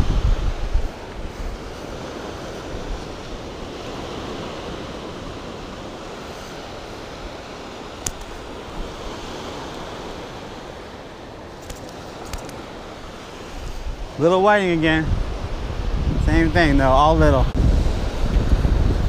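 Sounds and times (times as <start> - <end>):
ocean surf washing on beach: 0.0 - 19.0
small sharp click: 8.0 - 8.3, 11.6 - 12.6.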